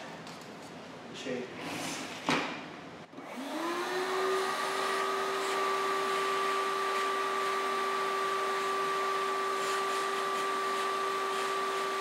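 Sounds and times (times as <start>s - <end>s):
vacuum motor whine: 3.1s - 12.0s.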